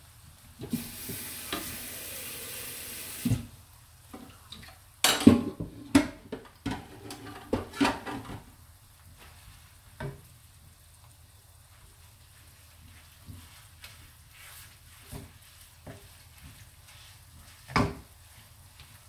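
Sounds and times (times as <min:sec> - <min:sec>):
cooking hiss: 0:00.0 - 0:19.0
utensils clattering against pan: 0:05.0 - 0:08.4.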